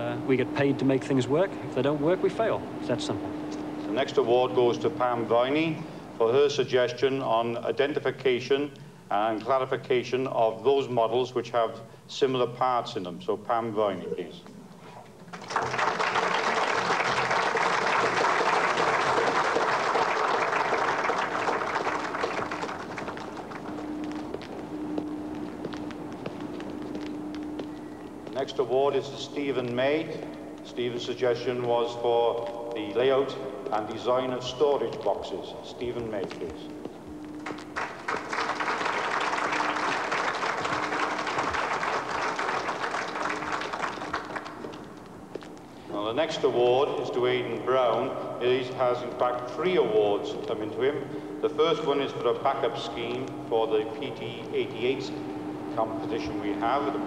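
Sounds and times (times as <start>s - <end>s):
crowd applauding: 15.2s - 24.6s, 37.4s - 44.9s.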